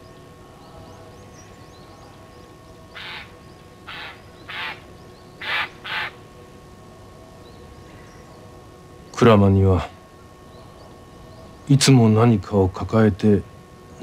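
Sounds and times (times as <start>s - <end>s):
faint steady hum: 0.0s - 14.0s
crow cawing: 2.9s - 6.2s.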